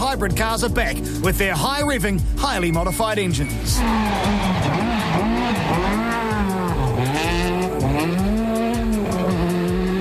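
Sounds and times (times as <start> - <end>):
background music: 0.0 - 10.0
rally car engine revving: 3.5 - 10.0.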